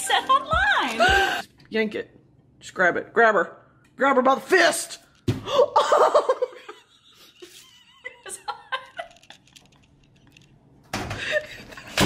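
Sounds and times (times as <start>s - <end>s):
people laughing: 5.8s - 9.4s.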